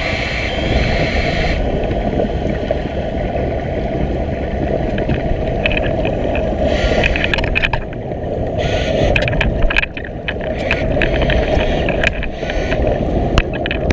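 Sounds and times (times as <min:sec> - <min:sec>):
bubbling hiss: 0:00.0 - 0:03.5
underwater churning rumble: 0:00.0 - 0:13.9.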